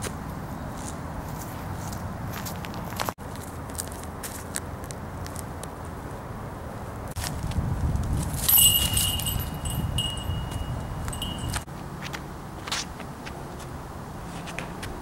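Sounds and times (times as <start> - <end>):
disc striking basket chains: 8.3 - 11.7
chains jangling and rattling: 8.4 - 11.6.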